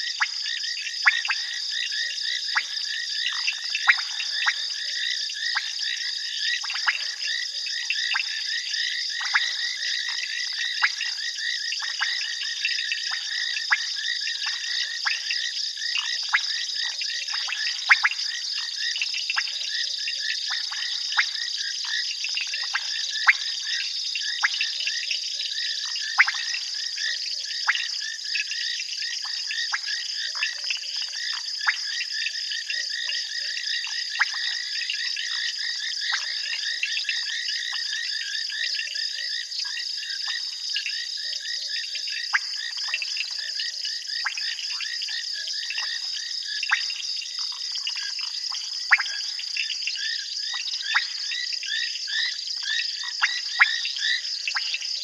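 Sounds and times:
frogs trilling: 0.0 - 55.0
frog clicking calls: 2.5 - 5.8, 11.8 - 24.8, 25.8 - 26.8, 29.2 - 55.0.

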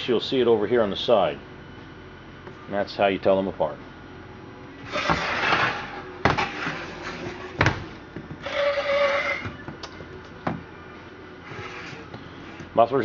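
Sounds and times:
chainsaw scraping on bench: 4.9 - 7.4, 8.4 - 9.6.

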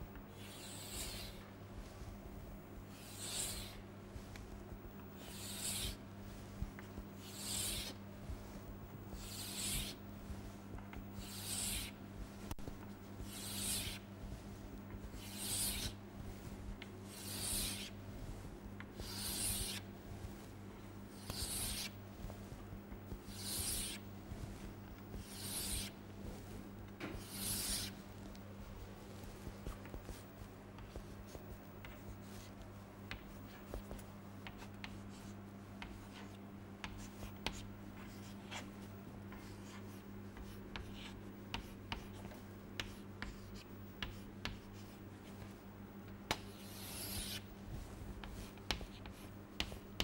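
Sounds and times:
steady low hum: 0.0 - 50.0
chalk scraping on chalkboard: 0.4 - 1.4, 3.0 - 3.8, 5.2 - 6.0, 7.2 - 8.6, 9.2 - 10.0, 11.2 - 12.6, 13.2 - 14.5, 15.1 - 16.5, 17.1 - 18.0, 19.0 - 19.8, 21.1 - 22.6, 23.2 - 26.6, 27.2 - 28.0, 30.8 - 45.4, 46.3 - 49.8.

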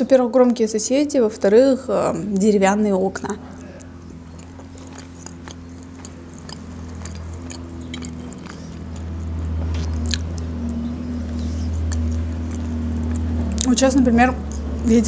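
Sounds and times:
tractor engine rumble: 0.0 - 15.0
close-up chewing: 3.1 - 14.9.

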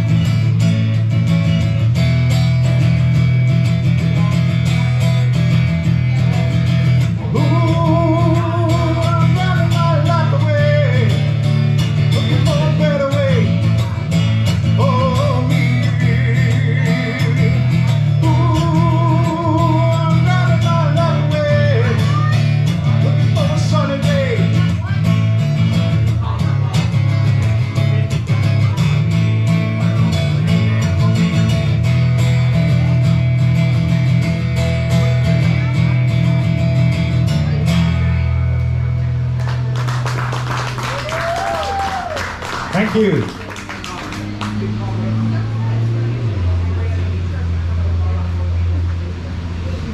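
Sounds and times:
acoustic guitar strumming: 0.0 - 47.8
low bass: 0.0 - 49.9
man singing: 7.2 - 25.2.

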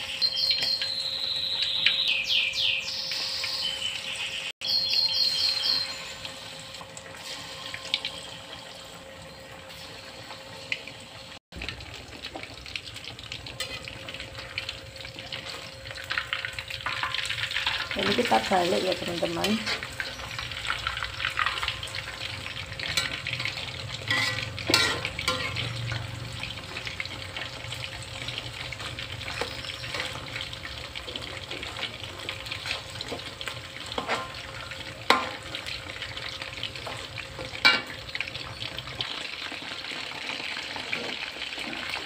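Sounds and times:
food deep-frying in hot oil: 0.0 - 42.0
metal spatula scraping a wok: 19.5 - 20.0, 22.9 - 25.9, 33.9 - 34.4.

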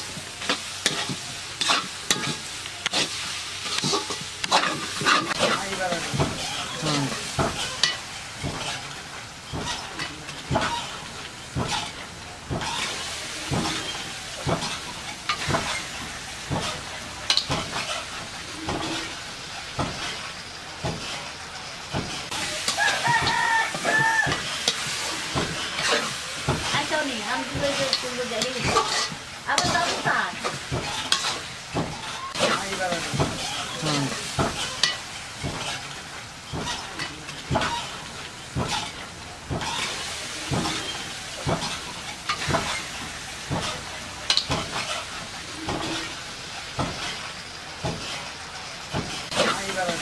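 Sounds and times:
meat sizzling in oil: 0.0 - 50.0
metal spatula scraping iron pan: 0.4 - 8.0, 22.2 - 36.0.

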